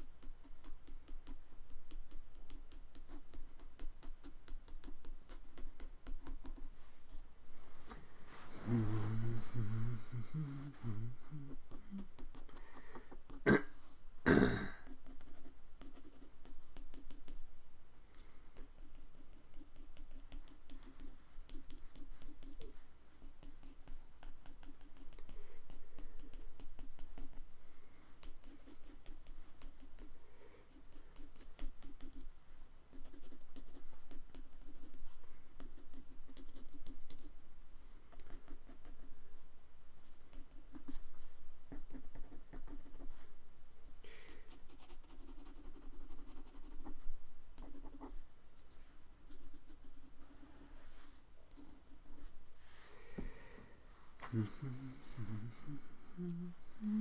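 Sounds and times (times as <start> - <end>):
pen scratching on paper: 47.6 - 52.4.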